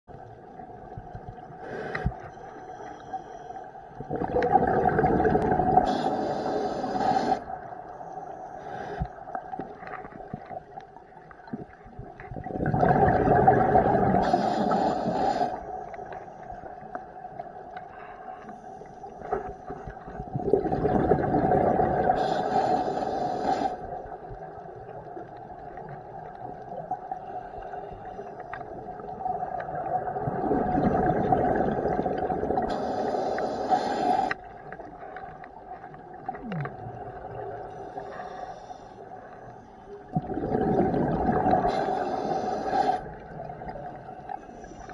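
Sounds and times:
faint hum: 0.1 - 11.6
exhaled bubbles gushing: 4.0 - 6.0, 11.4 - 14.4, 20.2 - 22.3, 28.8 - 32.8, 40.1 - 42.2.

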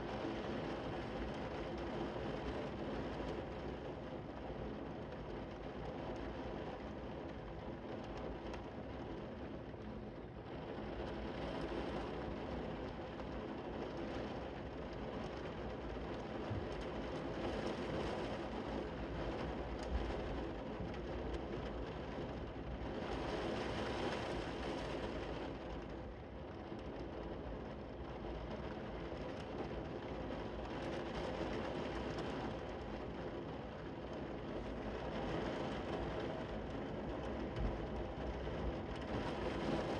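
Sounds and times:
heavy rain falling: 10.4 - 39.9.

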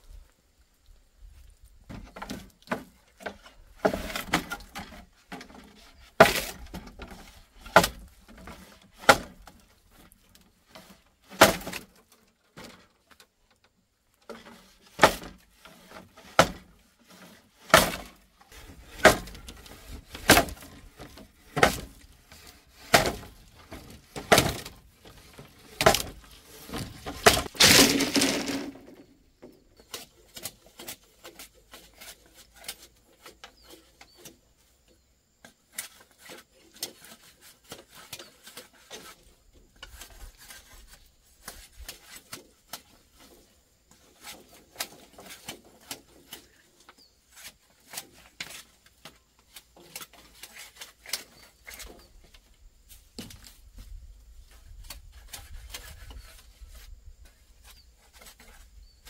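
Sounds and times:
bamboo splitting with crackle: 1.9 - 13.3, 14.3 - 34.4, 35.4 - 58.6
bamboo cracking under blade strikes: 9.0 - 9.6, 10.8 - 12.0, 14.9 - 15.4, 16.2 - 16.7, 17.6 - 18.2, 18.9 - 19.4, 20.1 - 22.0, 22.7 - 24.8, 25.8 - 28.9.

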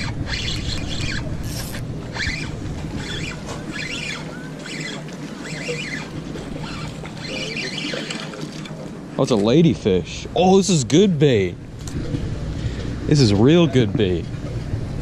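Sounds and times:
spinning reel being cranked: 0.0 - 8.1
water noise: 0.0 - 15.0
wind: 0.0 - 15.0.

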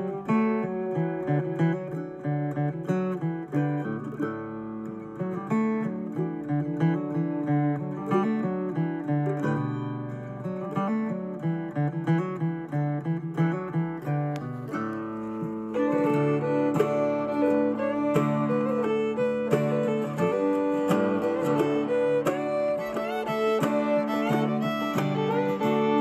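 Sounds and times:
plucked acoustic guitar music: 0.0 - 26.0.

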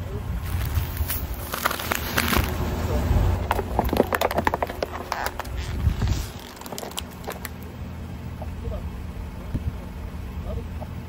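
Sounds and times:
car rumble: 0.0 - 11.0
tyre crushing crunchy objects: 0.4 - 7.7.

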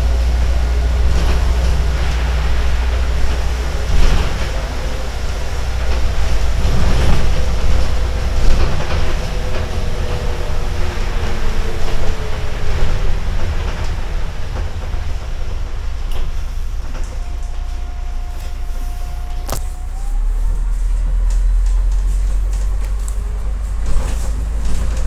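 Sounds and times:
bus engine and road rumble: 0.0 - 25.0
body rattles and clicks: 21.3 - 25.0.

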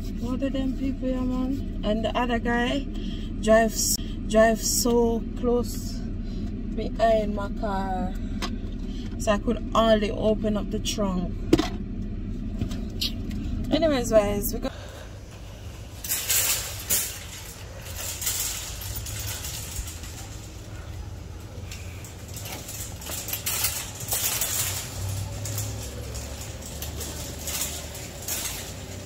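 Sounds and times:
shopping cart rattling: 0.0 - 6.0, 9.2 - 11.3, 12.8 - 29.0
cart clanking over threshold: 11.0 - 29.0.

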